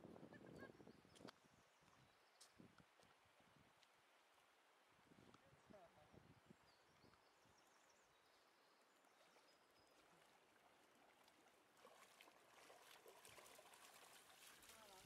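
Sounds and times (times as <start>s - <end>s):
faint flowing river water: 0.1s - 15.0s
dog splashing through water: 10.9s - 15.0s.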